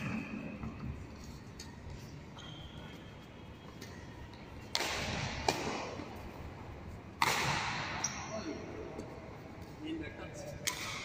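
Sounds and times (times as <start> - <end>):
low hall sound: 0.0 - 11.0
racket hitting shuttlecock: 4.6 - 6.2, 7.2 - 8.0, 10.6 - 11.0.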